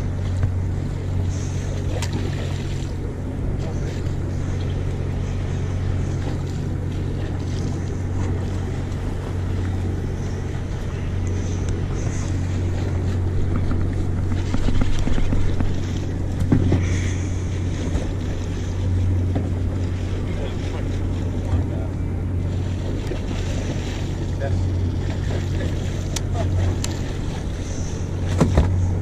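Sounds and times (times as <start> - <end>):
boat engine droning: 0.0 - 29.0
wind buffeting microphone: 7.3 - 24.0.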